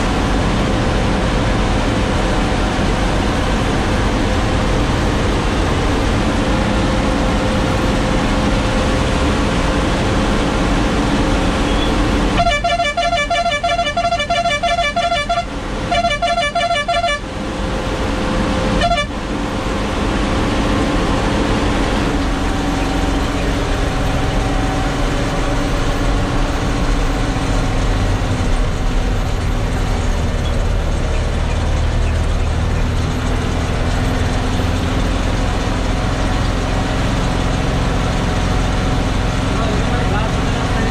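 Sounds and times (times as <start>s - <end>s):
truck diesel engine under load: 0.0s - 40.9s
horn pulses: 11.6s - 17.4s, 18.7s - 19.2s.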